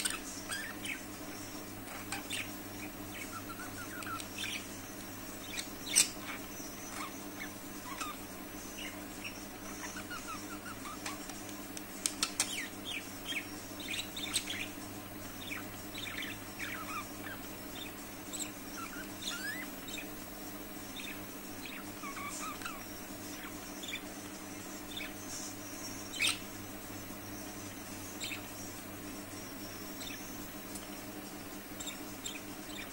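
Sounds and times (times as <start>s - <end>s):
budgerigars chirping and warbling: 0.0s - 11.4s, 12.1s - 20.2s, 20.8s - 26.6s, 27.6s - 28.6s, 29.8s - 30.3s, 31.8s - 32.9s.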